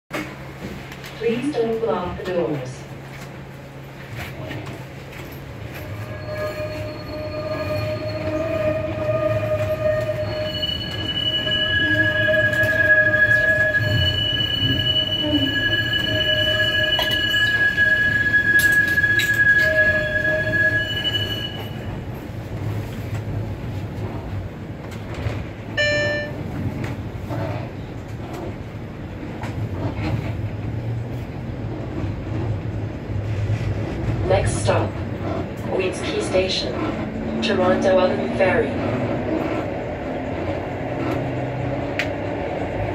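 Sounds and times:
streetcar wheels squealing: 0:04.5 - 0:22.3
brief tone: 0:05.8 - 0:21.9, 0:25.8 - 0:26.4.

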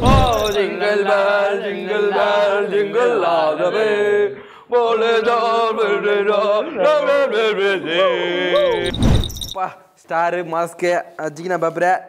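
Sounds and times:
men chanting: 0:00.0 - 0:08.9.

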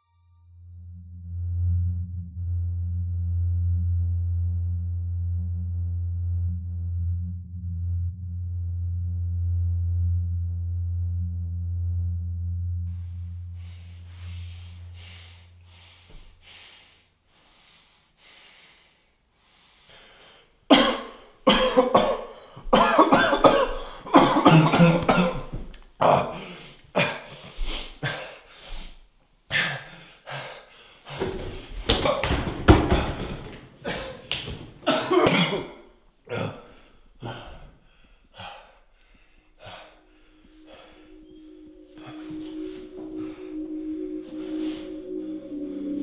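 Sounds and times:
low droning tone: 0:00.0 - 0:16.0, 0:39.6 - 0:46.0
faint breathy sounds: 0:13.0 - 0:21.4, 0:36.3 - 0:46.0
man coughing hard: 0:20.7 - 0:28.3, 0:33.8 - 0:37.6.

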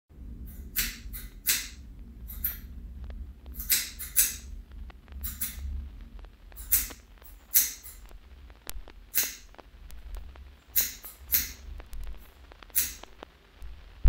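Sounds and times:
steady low hum: 0:00.1 - 0:14.0
scissors snipping hair: 0:03.6 - 0:04.5, 0:06.6 - 0:08.0, 0:10.8 - 0:11.6.

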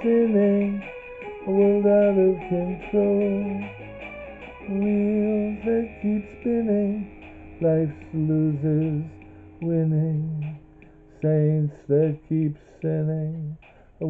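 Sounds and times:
man singing wordless held notes: 0:00.0 - 0:03.8, 0:04.6 - 0:13.8
recorded song playing: 0:00.0 - 0:14.0
faint low hum: 0:04.6 - 0:14.0.

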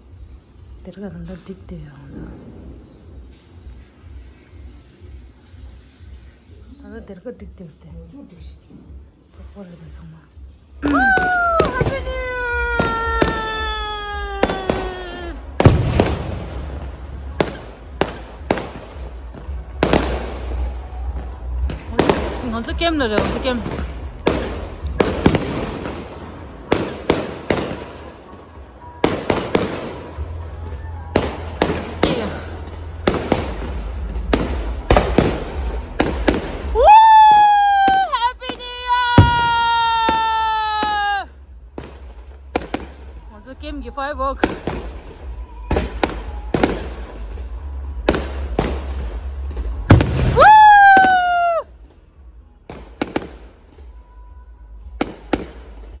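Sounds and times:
fireworks bursting with echoing bangs: 0:10.8 - 0:54.1, 0:54.8 - 0:56.0.

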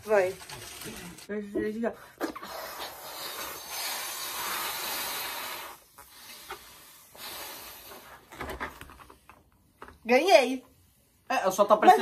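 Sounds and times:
people blowing up balloons: 0:02.0 - 0:08.3.

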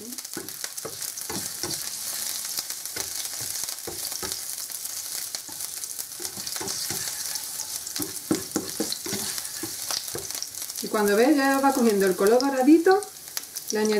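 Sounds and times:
garlic sizzling in hot oil: 0:00.0 - 0:13.9
plastic spatula scraping a pan: 0:06.2 - 0:10.4.

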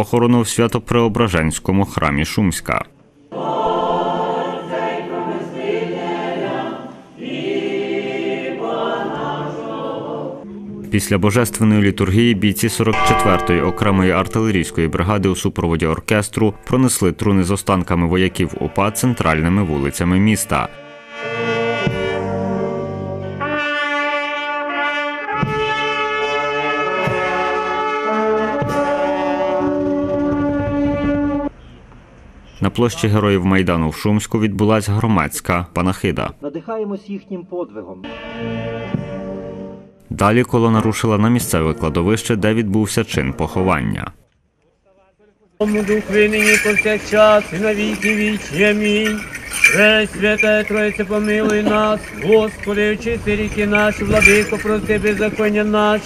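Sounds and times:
choir singing unaccompanied chant: 0:03.3 - 0:10.9
brass band playing slow chords: 0:20.8 - 0:31.5, 0:38.0 - 0:39.9.

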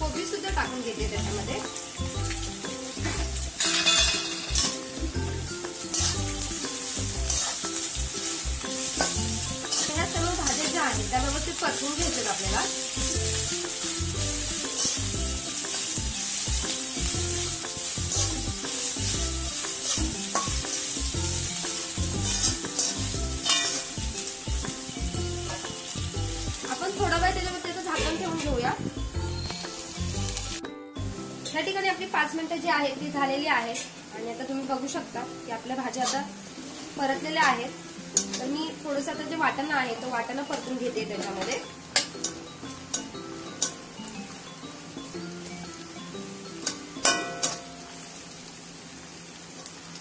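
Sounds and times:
vegetables sizzling in hot oil: 0:00.0 - 0:50.0
spatula stirring and scraping: 0:05.9 - 0:24.0.

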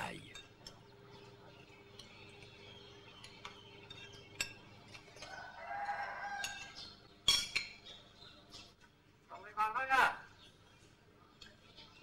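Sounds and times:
faint clinks of dishes: 0:00.2 - 0:08.8
rooster crowing: 0:05.2 - 0:06.8.

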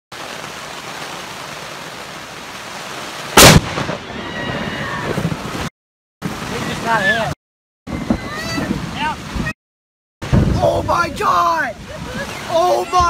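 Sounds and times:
steady rain: 0:00.1 - 0:09.6, 0:10.2 - 0:13.0
loud thunder crack: 0:03.4 - 0:05.6, 0:10.2 - 0:11.0.

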